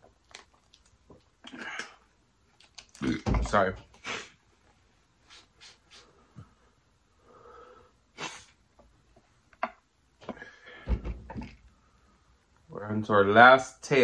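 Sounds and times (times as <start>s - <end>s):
chewing: 0.2s - 1.9s.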